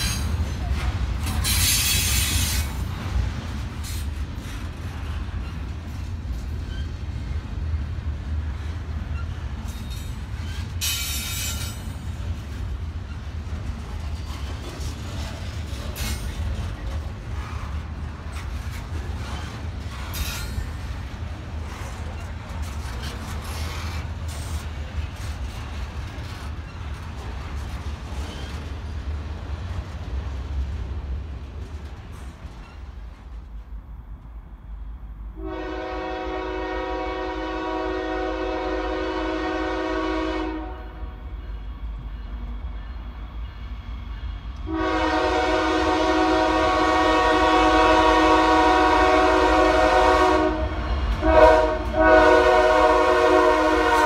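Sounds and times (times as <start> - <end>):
locomotive air horn blasts: 35.4 - 41.2, 44.6 - 54.0.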